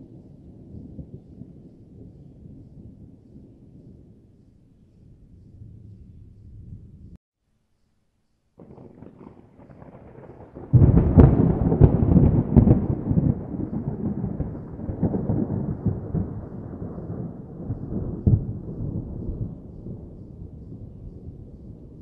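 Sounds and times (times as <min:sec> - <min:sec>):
thunder rumble: 0:00.0 - 0:07.2, 0:08.6 - 0:22.0
thunder cracks: 0:08.6 - 0:22.0.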